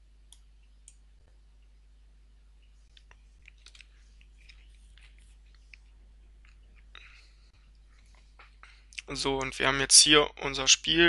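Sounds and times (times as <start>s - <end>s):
low electrical hum: 0.0s - 11.0s
small clicks and ticks: 2.6s - 6.6s.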